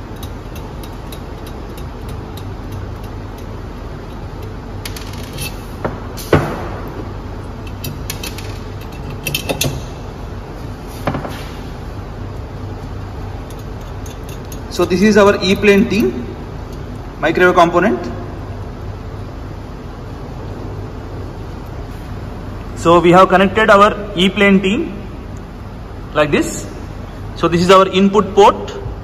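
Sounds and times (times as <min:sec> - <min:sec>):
metal parts clicking and knocking: 0:00.0 - 0:05.6, 0:07.6 - 0:10.0, 0:13.4 - 0:16.1
steady low hum: 0:00.0 - 0:29.0.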